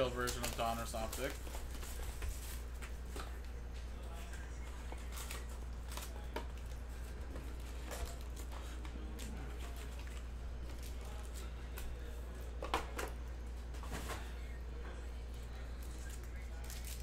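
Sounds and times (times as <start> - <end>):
foil packs crinkling: 0.0 - 2.8, 4.7 - 11.8, 15.8 - 17.0
steady low hum: 0.0 - 17.0.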